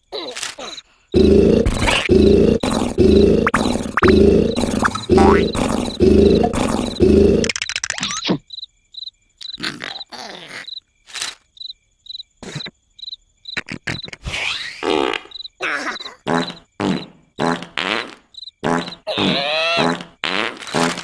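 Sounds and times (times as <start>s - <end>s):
cricket chirping: 0.0s - 21.0s
loud low vocal noise: 1.2s - 7.4s
cartoon character grunts: 19.1s - 20.0s.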